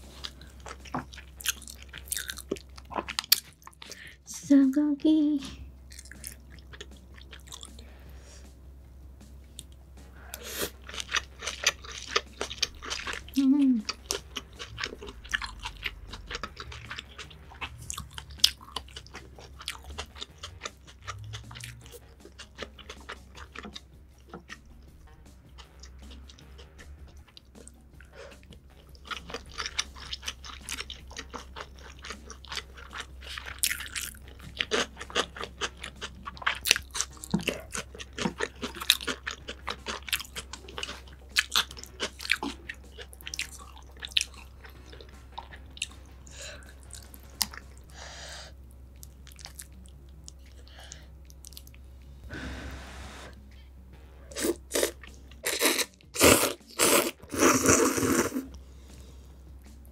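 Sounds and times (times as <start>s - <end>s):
steady low hum: 0.0s - 56.2s, 57.2s - 59.9s
slurping noodles: 52.3s - 53.4s, 54.3s - 58.6s.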